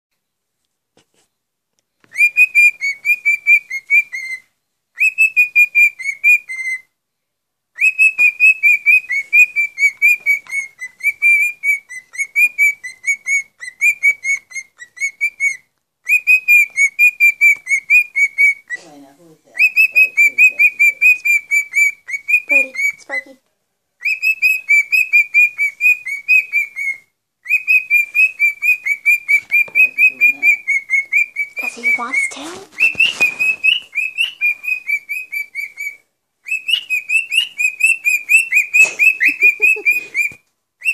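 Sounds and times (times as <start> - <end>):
cockatiel whistled chirps: 1.9 - 6.9, 7.8 - 18.9, 19.5 - 23.4, 24.0 - 40.9.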